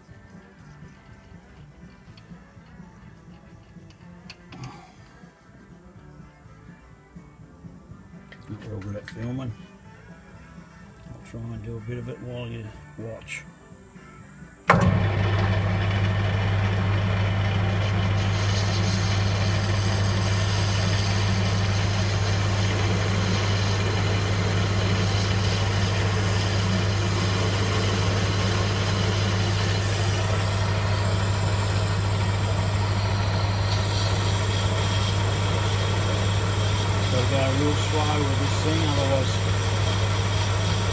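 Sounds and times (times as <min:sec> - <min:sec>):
lathe motor humming: 0:14.7 - 0:40.9
parting tool cutting metal: 0:17.8 - 0:40.9.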